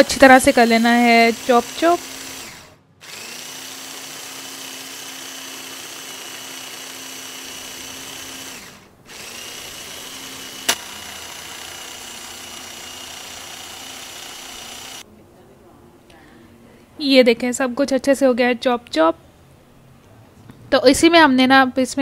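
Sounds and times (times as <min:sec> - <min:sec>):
food chopper motor running: 0:00.0 - 0:15.0.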